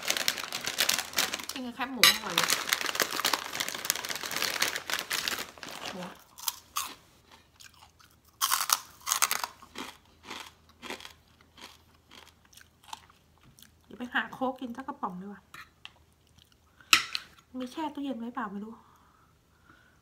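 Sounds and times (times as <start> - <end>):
plastic bag rustling: 0.0 - 6.2
crunchy food being chewed: 2.4 - 13.9.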